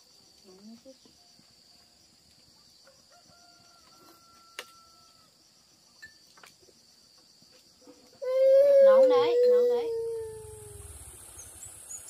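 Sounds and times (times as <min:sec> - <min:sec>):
insects trilling: 0:00.0 - 0:12.0
distant rooster crowing: 0:02.8 - 0:05.4.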